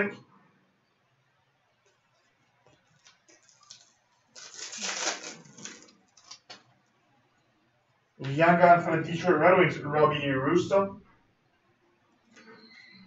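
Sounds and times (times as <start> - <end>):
plastic wrapper crinkling: 2.6 - 6.7.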